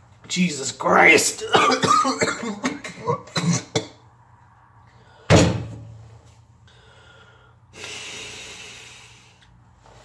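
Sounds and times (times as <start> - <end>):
loud bang: 5.3 - 5.9
breathy hiss: 6.8 - 9.5.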